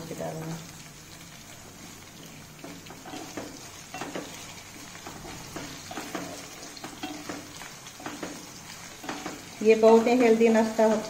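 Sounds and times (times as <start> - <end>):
potatoes sizzling in oil: 0.0 - 11.0
spatula scraping pan: 2.6 - 11.0.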